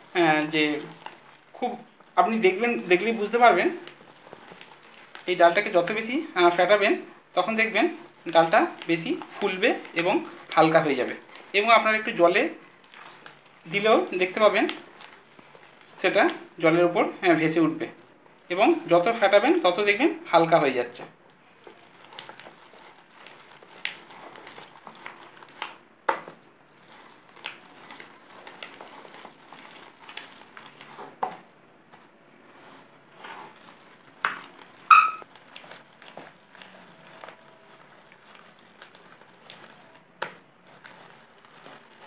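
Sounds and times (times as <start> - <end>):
wet squishing of paste: 0.0 - 20.3, 21.1 - 42.0.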